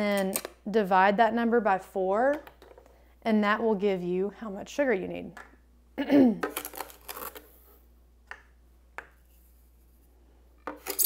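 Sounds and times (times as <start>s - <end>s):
container and cup scraping: 10.8s - 11.0s.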